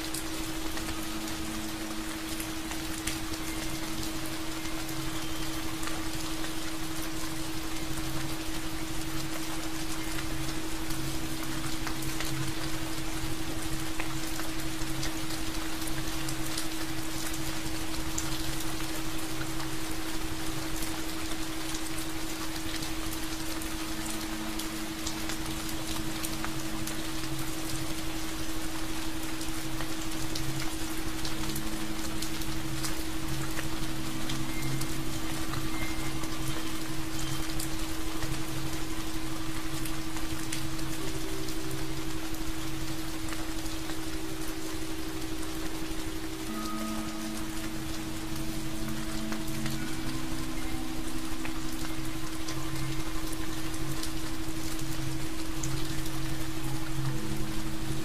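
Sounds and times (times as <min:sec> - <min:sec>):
rain pattering: 0:00.0 - 0:58.0
soft sustained tones: 0:23.1 - 0:58.0.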